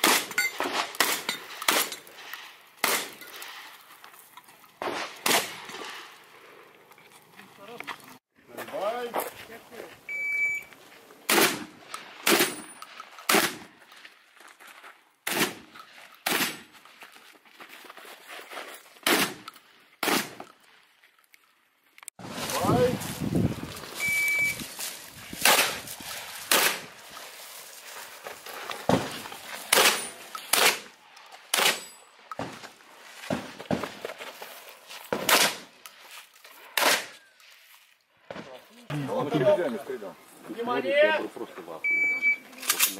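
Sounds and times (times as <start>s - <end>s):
shotgun shots: 0.0s - 2.0s, 2.8s - 3.2s, 4.8s - 5.8s, 11.3s - 12.7s, 13.3s - 13.7s, 15.2s - 16.7s, 19.0s - 19.4s, 20.0s - 20.4s, 25.4s - 25.8s, 26.5s - 27.0s, 28.9s - 30.9s, 31.5s - 31.9s, 35.1s - 35.7s, 36.8s - 37.2s
shotgun shots with echo: 11.3s - 12.7s, 13.3s - 13.7s, 26.5s - 26.9s.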